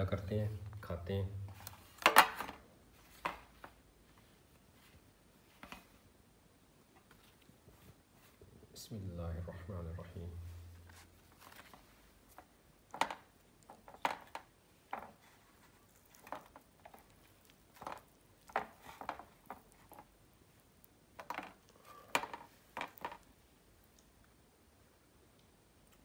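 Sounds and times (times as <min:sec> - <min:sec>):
chewing: 0:15.2 - 0:20.9.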